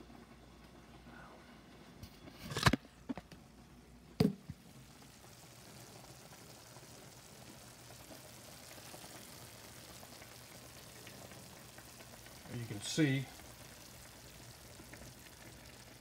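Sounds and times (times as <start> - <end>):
meat sizzling in a skillet: 4.6 - 16.0.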